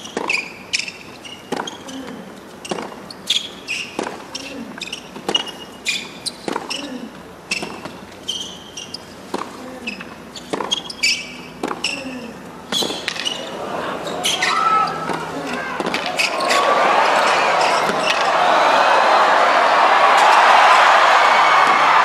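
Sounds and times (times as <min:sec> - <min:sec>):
racket striking tennis ball: 0:00.0 - 0:03.0, 0:03.9 - 0:04.4, 0:06.4 - 0:06.8, 0:10.5 - 0:12.0, 0:12.7 - 0:13.4, 0:14.2 - 0:18.4
tennis ball bouncing: 0:00.0 - 0:13.5, 0:14.2 - 0:18.4
shoes squeaking on court: 0:00.0 - 0:18.4.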